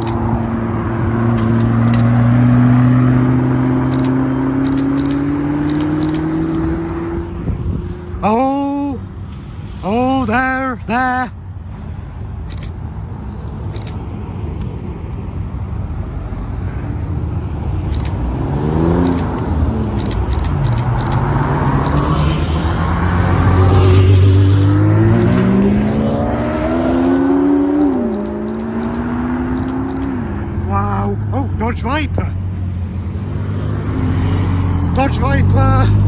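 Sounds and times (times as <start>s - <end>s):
engine accelerating and upshifting: 0.0s - 7.6s, 17.9s - 30.6s
car engines driving past: 0.0s - 8.3s, 8.9s - 36.0s.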